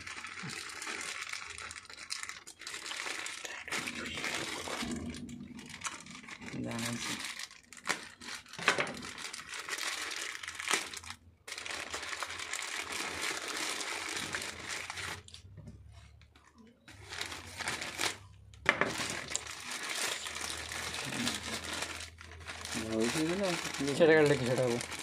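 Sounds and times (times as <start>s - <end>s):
plastic bag crinkling and tearing: 0.0s - 25.0s.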